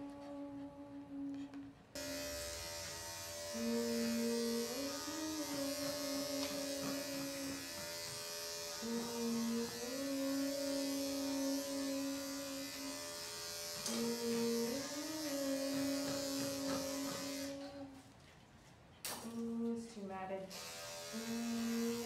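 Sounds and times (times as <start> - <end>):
electric clippers cutting hair: 2.0 - 18.0, 20.4 - 22.0.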